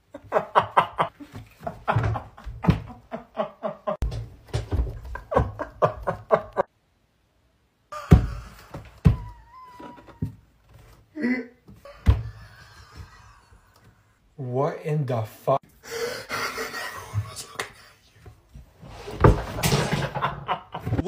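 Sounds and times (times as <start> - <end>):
person laughing: 0.1 - 4.0, 5.1 - 6.7, 7.9 - 10.3, 11.2 - 13.8, 15.9 - 18.0, 19.7 - 21.0.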